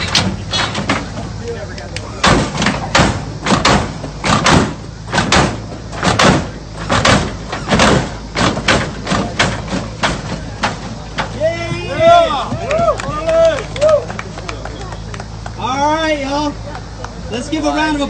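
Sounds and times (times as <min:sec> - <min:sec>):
car hydraulics banging: 0:00.0 - 0:14.0.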